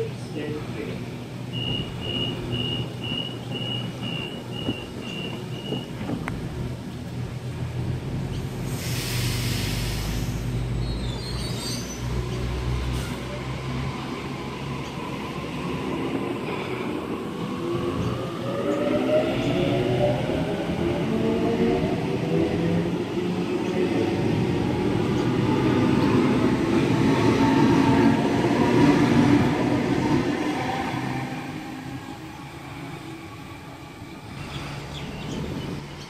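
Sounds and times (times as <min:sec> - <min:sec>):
electric train humming: 0:00.0 - 0:10.7, 0:12.1 - 0:36.0
air hiss: 0:08.6 - 0:10.6.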